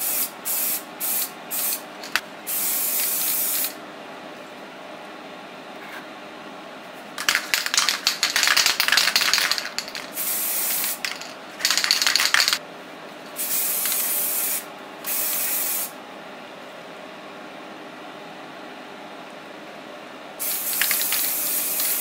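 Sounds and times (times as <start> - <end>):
spray paint hissing: 0.0 - 3.8, 7.2 - 12.6, 13.4 - 15.9, 20.4 - 22.0.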